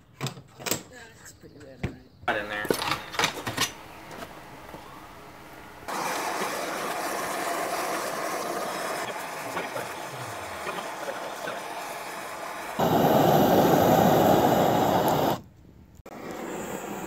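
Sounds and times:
gas torch flame hissing: 3.7 - 17.0.

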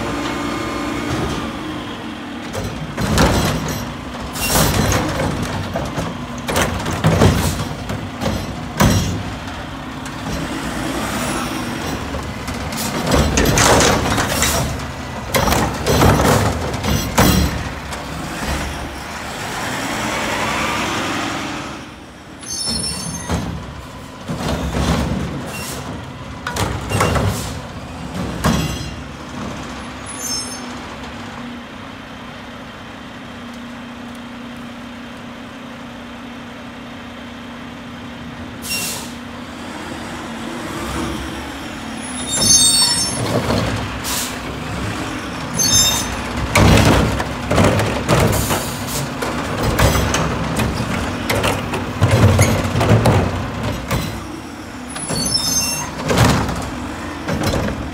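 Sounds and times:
diesel engine and hydraulics running: 0.0 - 57.9
metal clanks and bangs: 2.5 - 10.6, 11.8 - 18.9, 22.7 - 29.8, 42.3 - 57.9.

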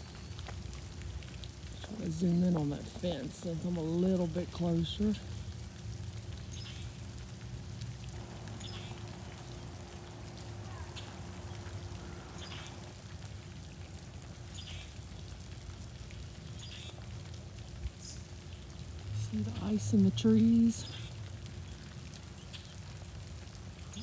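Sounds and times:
drizzle pattering and dripping: 0.0 - 24.0
steady low hum: 7.9 - 13.5.

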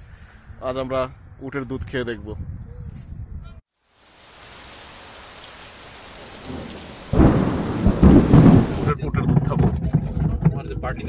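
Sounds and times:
rain hissing: 3.8 - 8.9
rolling thunderclap: 5.4 - 9.0.

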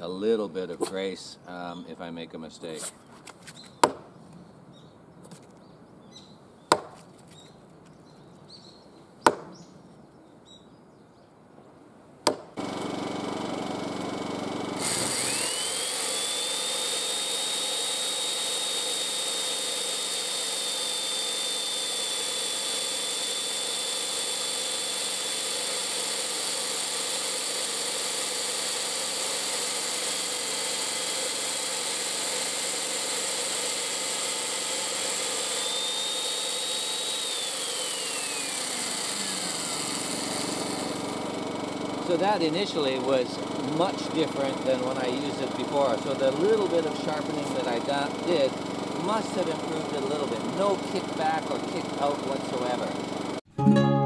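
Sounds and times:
chain mortiser whining: 12.3 - 53.5.

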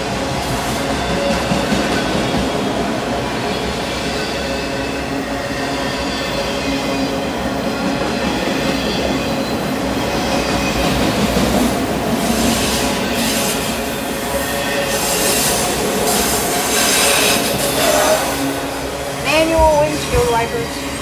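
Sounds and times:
train wheels rumbling on rails: 0.0 - 21.0
train hiss: 11.8 - 21.0.

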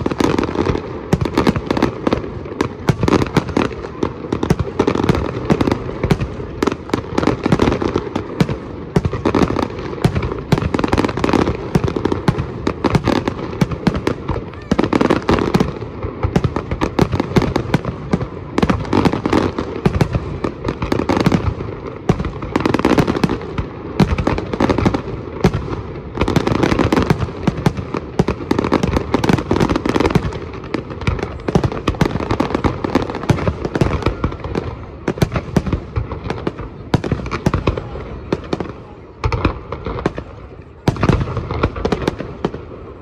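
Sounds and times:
fireworks bangs and crackling: 0.0 - 43.0.

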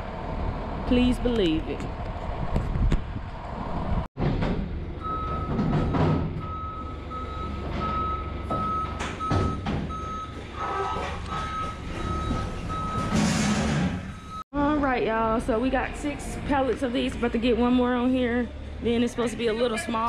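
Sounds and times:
backup alarm beeping: 5.0 - 10.4, 11.3 - 13.2.

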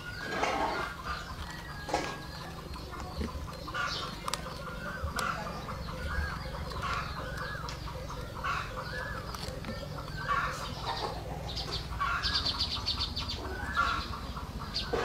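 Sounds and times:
birds calling: 0.0 - 15.0.

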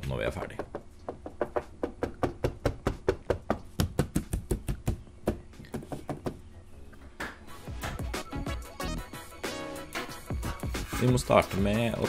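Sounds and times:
fingers knocking on steel panel: 0.6 - 6.4.

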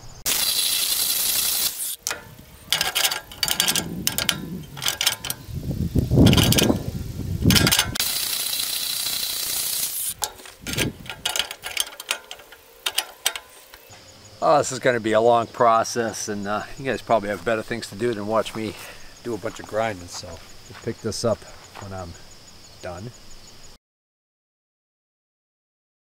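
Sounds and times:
angle grinder grinding steel: 0.2 - 14.0
metal clanks and scrapes: 1.9 - 5.6, 6.2 - 8.4, 9.1 - 14.1
loud metal clatter: 2.0 - 5.6, 6.2 - 13.8.

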